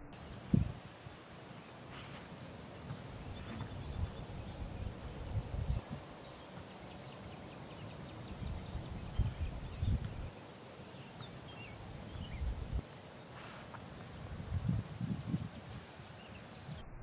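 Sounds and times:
wind buffeting microphone: 0:00.0 - 0:01.2, 0:02.8 - 0:10.4, 0:11.8 - 0:12.9, 0:14.0 - 0:16.9
birds chirping: 0:00.0 - 0:16.9.

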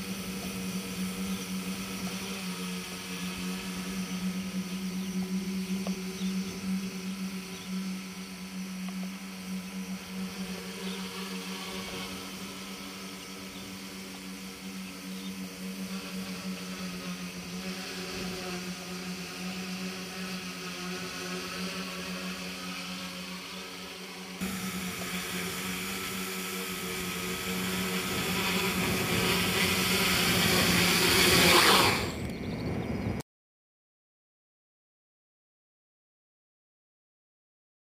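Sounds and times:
drone motors buzzing hum: 0:00.0 - 0:33.2.

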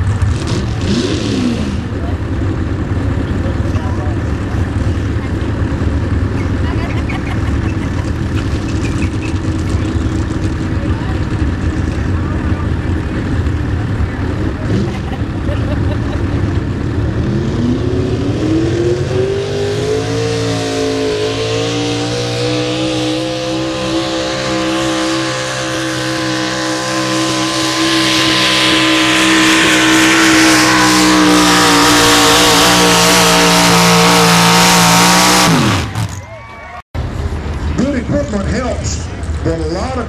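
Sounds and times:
pickup truck engine at full throttle: 0:00.0 - 0:36.2.

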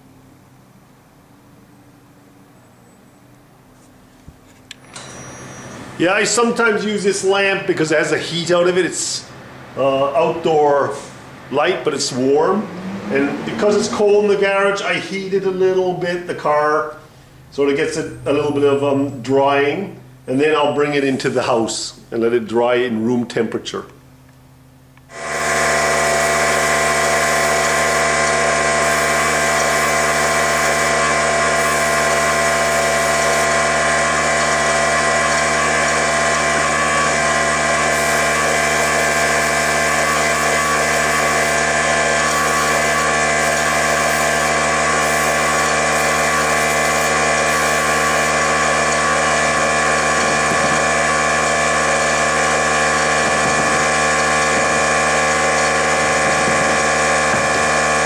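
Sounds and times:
electric motor whirring: 0:25.1 - 0:58.0.

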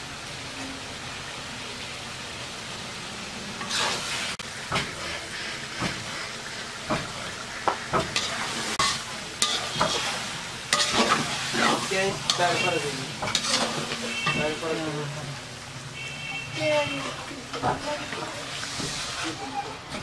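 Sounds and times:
curry sizzling: 0:00.0 - 0:20.0
metal spatula scraping pan: 0:08.1 - 0:14.8, 0:16.6 - 0:20.0.

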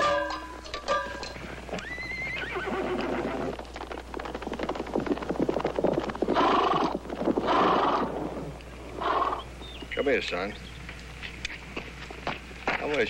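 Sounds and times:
hoof knocks: 0:00.0 - 0:02.3
horse whinnying: 0:01.7 - 0:03.6, 0:06.3 - 0:09.5.

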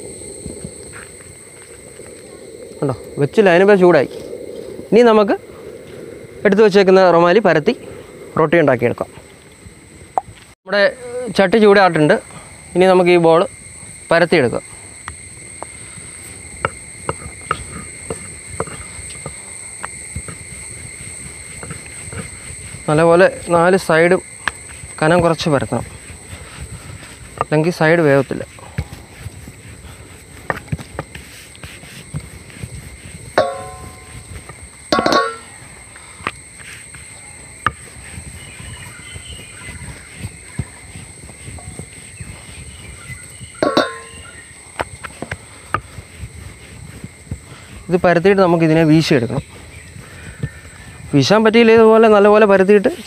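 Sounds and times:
high-pitched insect drone: 0:00.0 - 0:53.0
rolling pin rubbing dough: 0:20.2 - 0:35.5, 0:36.6 - 0:49.4.

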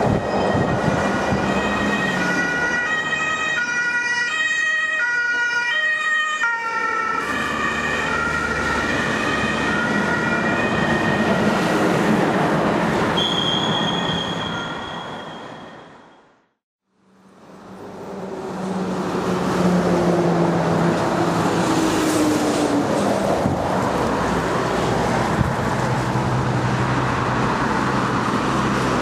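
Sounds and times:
two-tone ambulance siren: 0:00.0 - 0:12.1, 0:13.2 - 0:16.3
traffic noise: 0:00.0 - 0:29.0.

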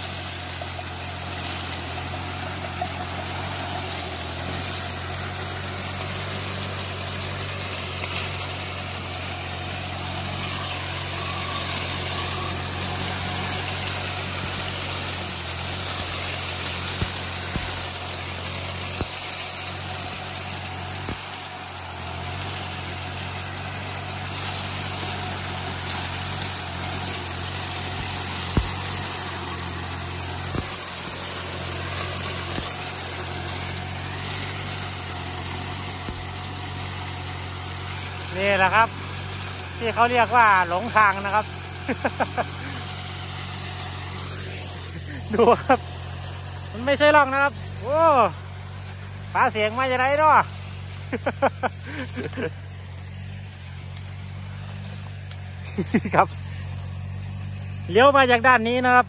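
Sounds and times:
constant hiss: 0:00.0 - 0:59.0
shredder chopping cane: 0:00.0 - 0:59.0
tractor diesel engine running: 0:00.0 - 0:59.0.

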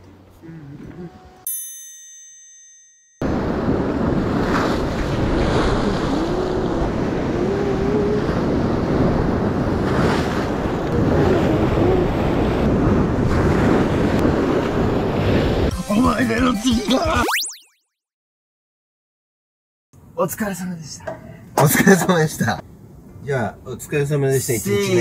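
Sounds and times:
wind buffeting microphone: 0:03.2 - 0:15.7.

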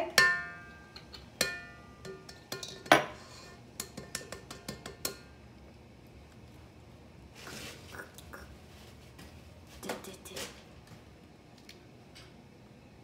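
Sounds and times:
metal bowl ringing: 0:00.0 - 0:03.0
egg tapping on metal bowl: 0:00.1 - 0:03.1, 0:03.8 - 0:05.3.

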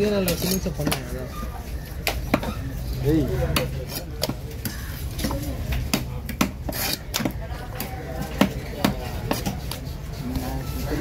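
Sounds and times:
knife striking wooden chopping block: 0:05.2 - 0:09.7.

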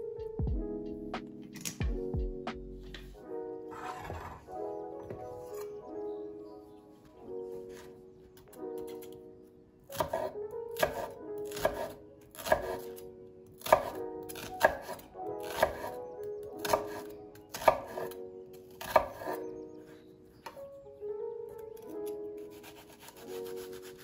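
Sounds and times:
knife slicing onion on wooden board: 0:09.9 - 0:12.9, 0:13.6 - 0:16.0, 0:16.6 - 0:18.2, 0:18.8 - 0:19.4.

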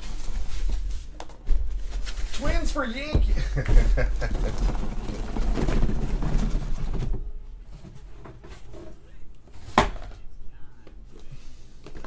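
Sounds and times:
cardboard box scraping: 0:04.1 - 0:07.1.

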